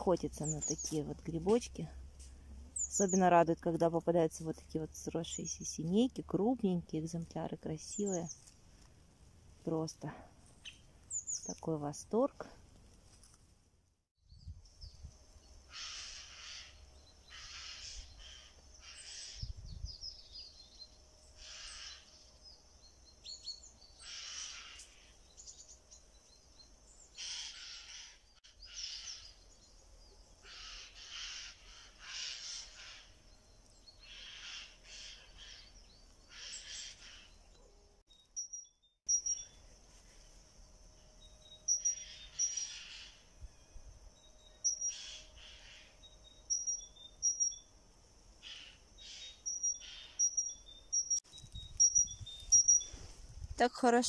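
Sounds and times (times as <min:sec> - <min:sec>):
loud bird calls: 0:15.7 - 0:22.4, 0:23.8 - 0:25.8, 0:27.0 - 0:29.6, 0:30.3 - 0:37.8, 0:41.5 - 0:43.4, 0:44.4 - 0:47.7, 0:48.4 - 0:51.2
thin high bird chirping: 0:15.7 - 0:40.2, 0:41.2 - 0:47.8, 0:48.4 - 0:53.0.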